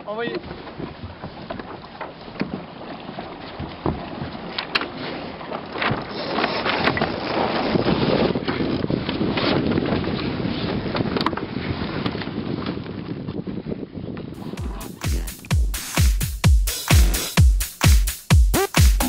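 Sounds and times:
wind buffeting microphone: 6.9 - 14.6.

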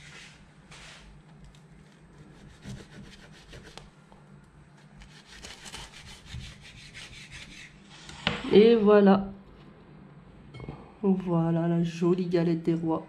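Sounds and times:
knife cutting pastry crust: 1.8 - 3.9, 4.8 - 7.5.

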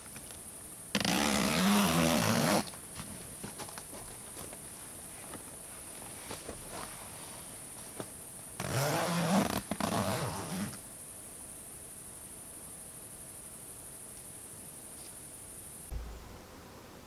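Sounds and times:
zipper pulled: 1.0 - 2.7, 8.6 - 10.8.

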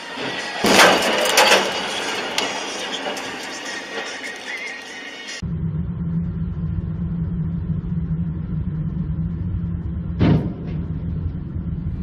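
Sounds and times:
low rumble of vehicle driving: 0.0 - 12.0
sudden short bang: 10.1 - 11.1.

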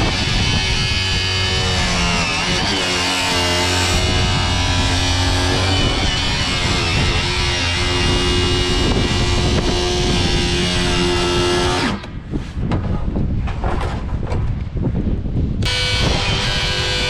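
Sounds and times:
angle grinder cutting plastic: 0.0 - 12.2, 15.6 - 17.0.

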